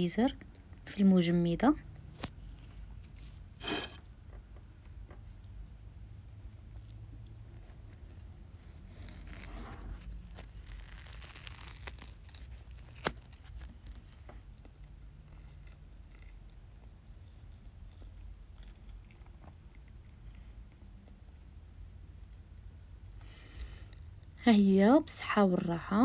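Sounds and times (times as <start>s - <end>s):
low steady hum: 0.0s - 26.0s
dry crackling and crunching: 6.8s - 20.3s.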